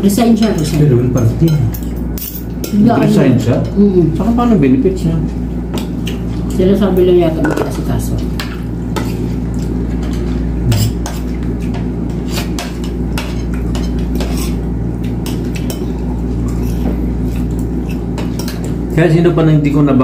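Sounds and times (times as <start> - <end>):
steady low hum: 0.0 - 20.0
cutlery clinking on plates: 10.0 - 14.6.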